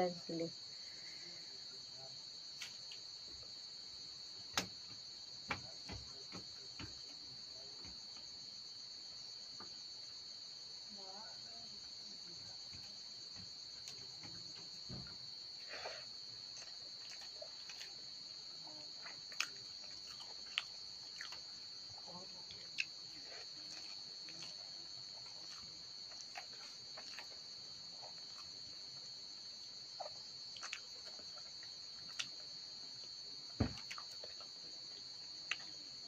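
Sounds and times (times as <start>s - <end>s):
crickets chirring: 0.0s - 36.0s.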